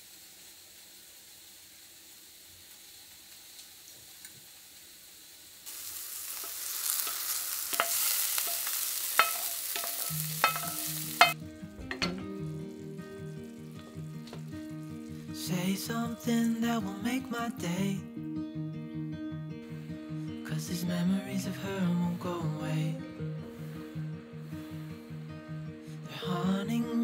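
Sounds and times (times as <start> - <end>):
rice sizzling in a frying pan: 0.0 - 17.4
music notes: 6.9 - 26.2.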